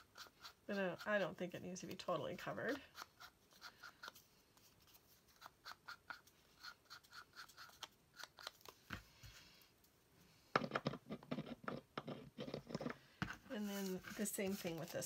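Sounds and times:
ink pad tapping and scraping paper: 10.6 - 15.0.

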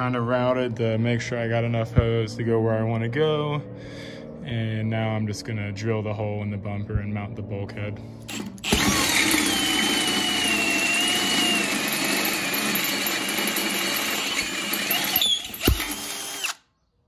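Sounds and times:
drill clutch click: 8.3 - 16.6
drill cutting metal: 8.3 - 16.6.

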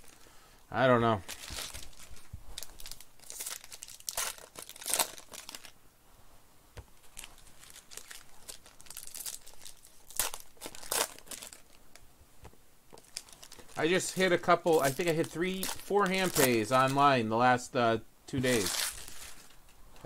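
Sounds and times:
foil wrappers crinkling and tearing: 1.2 - 5.8, 7.0 - 11.8, 13.0 - 17.1, 18.4 - 19.6.

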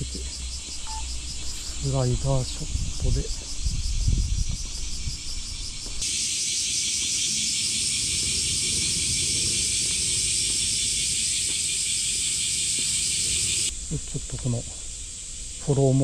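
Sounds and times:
insects buzzing: 0.0 - 16.0
low rumbling: 7.1 - 16.0.

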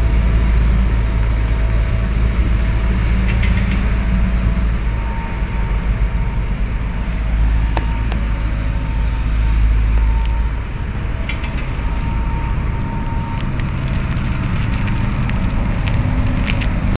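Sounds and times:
traffic and machinery rumble: 0.0 - 16.9
sharp clicks and crackles: 3.2 - 4.2, 11.2 - 16.9.

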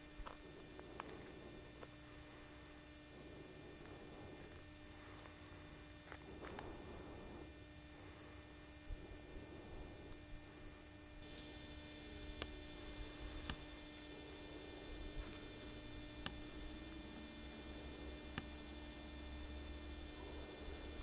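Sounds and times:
faint steady hum: 0.0 - 21.0
thin high whine: 0.0 - 21.0
sharp ticks: 12.2 - 13.7, 16.2 - 16.5.

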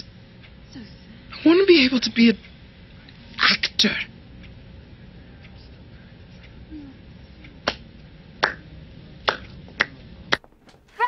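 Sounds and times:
finger snaps: 7.6 - 7.8.

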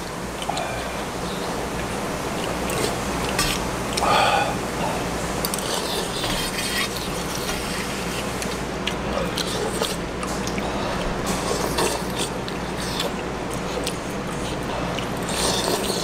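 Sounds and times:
low room hum: 0.0 - 16.0
people slurping soup: 2.7 - 8.3, 9.1 - 16.0.

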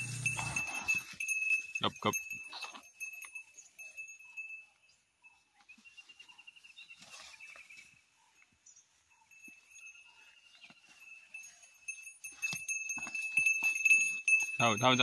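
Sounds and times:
thin steady high tone: 0.0 - 4.9
rustling in grass: 5.6 - 14.6.

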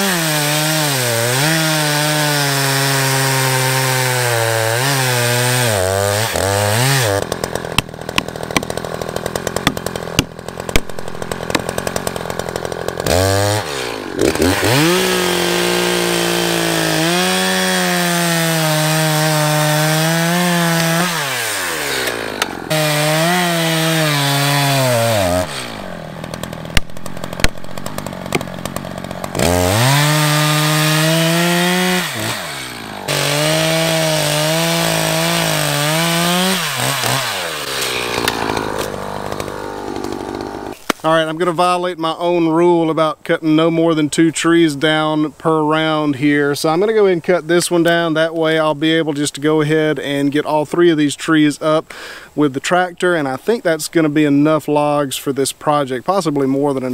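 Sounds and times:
chainsaw cutting log: 0.0 - 41.3, 47.7 - 49.0.

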